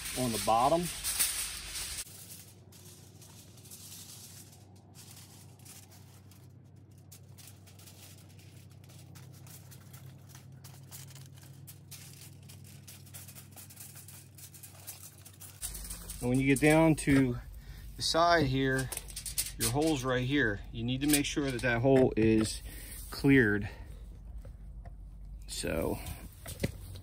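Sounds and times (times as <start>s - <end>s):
aluminium foil crinkling: 0.0s - 24.5s
steady low hum: 0.0s - 27.0s.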